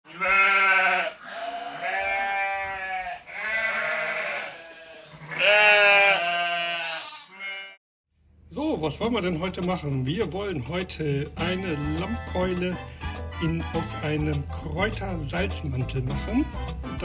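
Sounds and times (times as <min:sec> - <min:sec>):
sheep bleating: 0:00.1 - 0:07.8.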